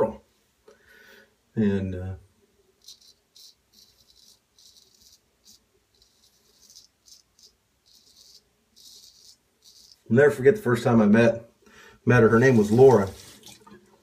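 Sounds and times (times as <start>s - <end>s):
razor scraping beard stubble: 2.8s - 10.1s.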